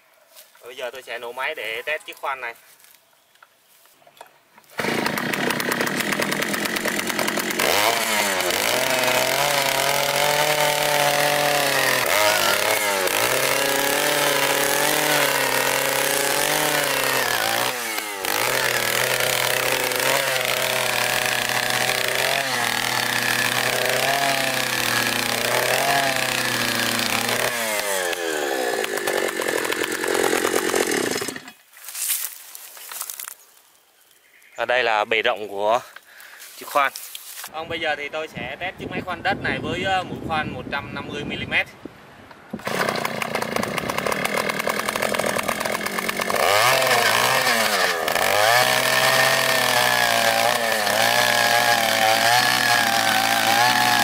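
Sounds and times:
earth auger engine running: 4.8s - 31.5s, 42.6s - 54.0s.

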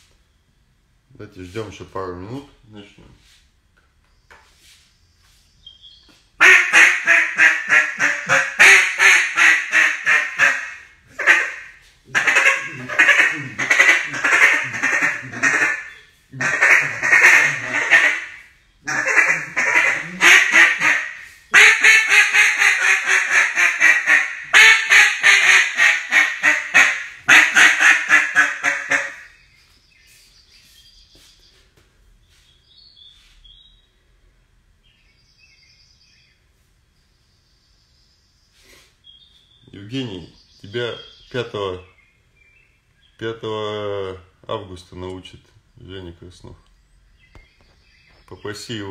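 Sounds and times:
duck call quacking: 6.4s - 29.3s.

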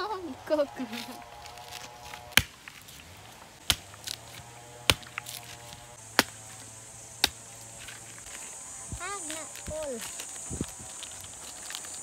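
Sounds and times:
machete chopping coconut: 1.4s - 2.8s, 3.6s - 8.0s.

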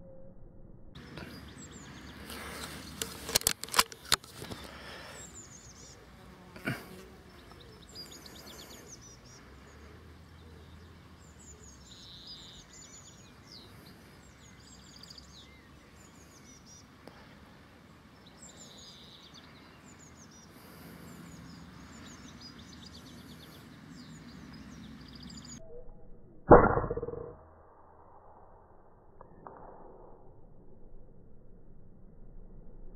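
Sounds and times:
small birds chirping: 1.0s - 25.6s
air rifle shot: 26.5s - 27.3s.

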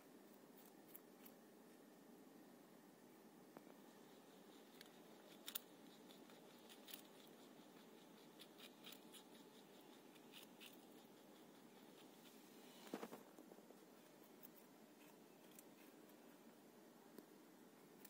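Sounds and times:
rabbit crunching a carrot: 0.0s - 1.9s, 3.5s - 18.0s
low background hiss: 0.0s - 18.0s.

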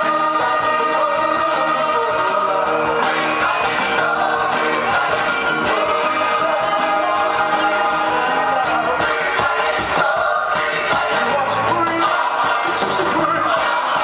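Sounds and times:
pop song with singing: 0.0s - 14.0s.

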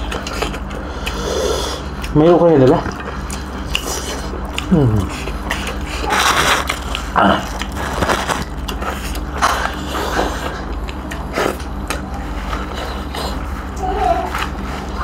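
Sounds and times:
chewing and tearing meat: 0.0s - 15.0s
steady low hum: 0.0s - 15.0s.

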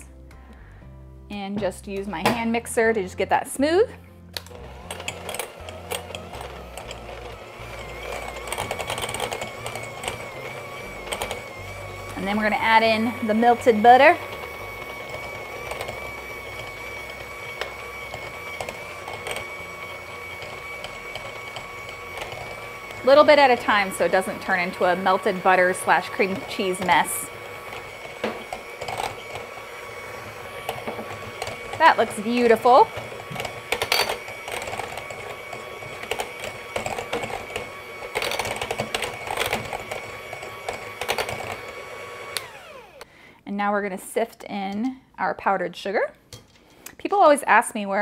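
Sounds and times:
electric hand mixer whining: 4.4s - 43.2s.

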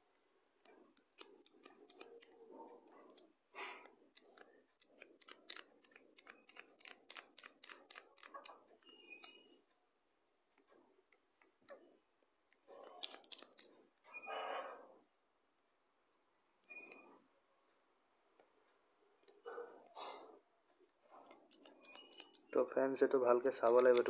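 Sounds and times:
plastic eraser holder clicking: 23.6s - 24.0s.

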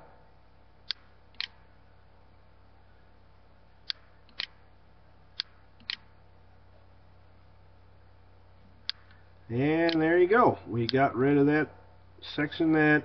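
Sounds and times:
faint steady hiss: 0.0s - 13.0s
computer mouse clicking: 0.9s - 1.6s, 3.8s - 4.6s, 5.4s - 6.1s.

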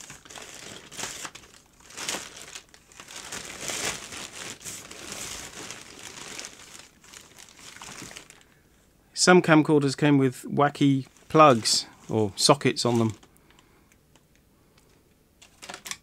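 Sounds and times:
plastic bag crinkling: 0.0s - 8.6s, 11.0s - 13.6s, 15.4s - 16.0s.

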